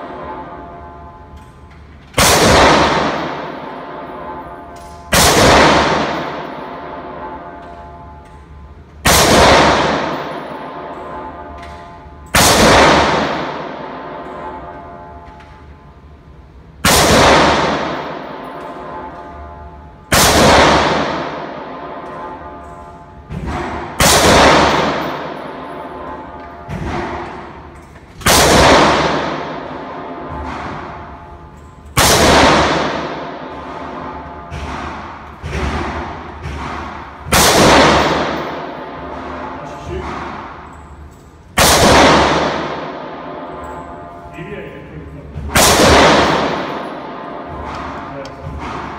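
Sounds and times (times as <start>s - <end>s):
rifle shots echoing: 2.1s - 7.5s, 9.0s - 14.8s, 16.8s - 19.5s, 20.1s - 44.3s, 45.3s - 48.9s
faint bangs: 16.9s - 48.9s.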